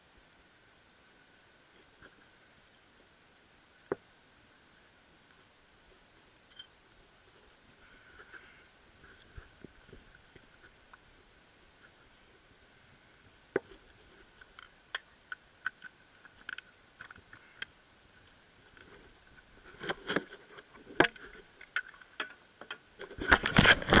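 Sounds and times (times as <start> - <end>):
faint steady high tone: 5.8 - 7.0.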